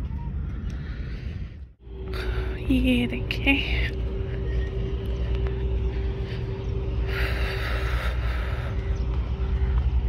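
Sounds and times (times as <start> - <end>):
low outdoor rumble: 0.0 - 10.0
faint constant hum: 1.8 - 10.0.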